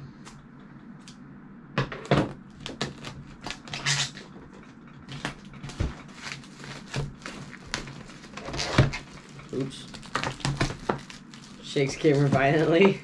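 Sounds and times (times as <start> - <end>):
packaging rasping scrape: 2.9 - 12.6.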